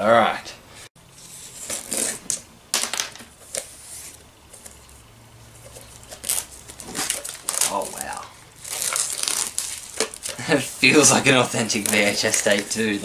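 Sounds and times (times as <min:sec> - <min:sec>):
fingernails scratching shrink-wrap: 0:01.6 - 0:02.4, 0:08.6 - 0:10.4, 0:11.0 - 0:13.0.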